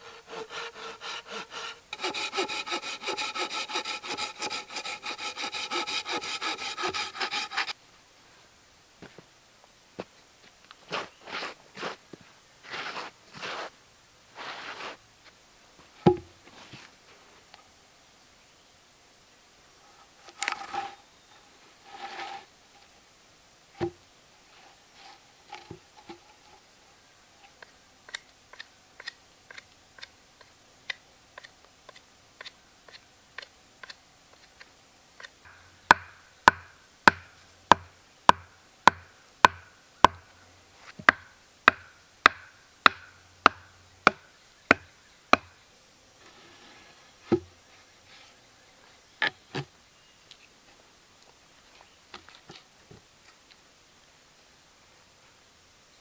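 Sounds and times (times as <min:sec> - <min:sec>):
wooden mallet knocking stakes: 0:35.5 - 0:40.2, 0:41.0 - 0:45.5.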